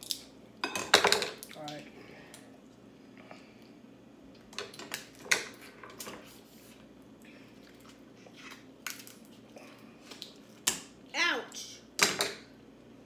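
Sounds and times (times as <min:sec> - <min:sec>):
crab shells cracking: 0:00.0 - 0:00.3, 0:08.8 - 0:09.3.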